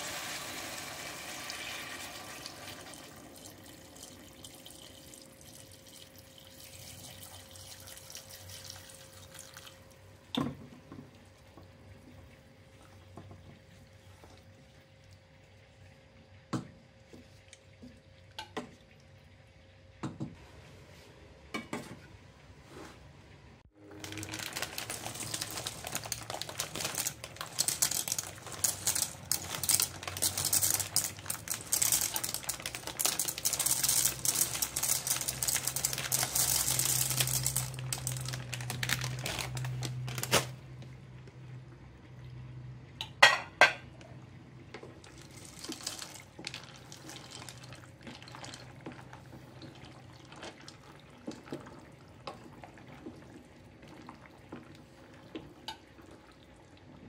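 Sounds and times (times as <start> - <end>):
dry pasta pouring into pot: 23.8 - 40.5, 45.0 - 51.1.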